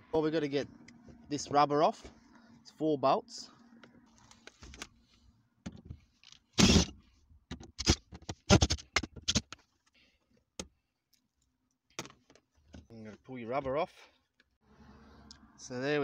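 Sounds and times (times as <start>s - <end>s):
cordless drill burst: 6.6s - 6.9s.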